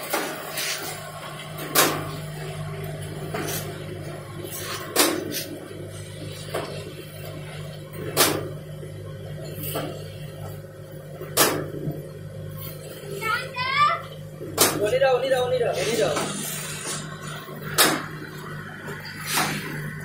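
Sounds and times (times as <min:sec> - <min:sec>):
low machine hum: 0:00.0 - 0:20.0.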